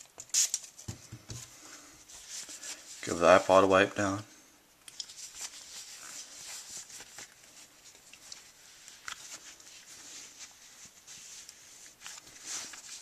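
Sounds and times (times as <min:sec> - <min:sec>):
cloth rubbing on device: 0:05.1 - 0:13.0.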